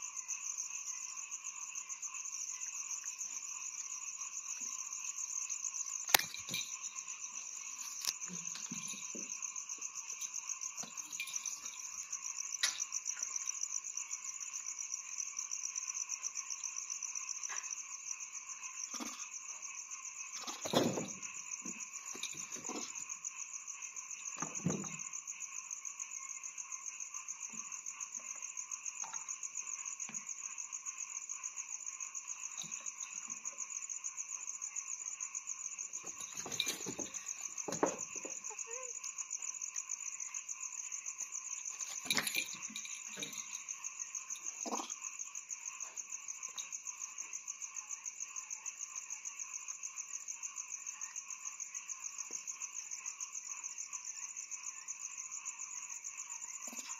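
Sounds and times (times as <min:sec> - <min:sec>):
night insects trilling: 0:00.0 - 0:56.9
knocks and bumps: 0:20.4 - 0:23.0, 0:36.0 - 0:38.5.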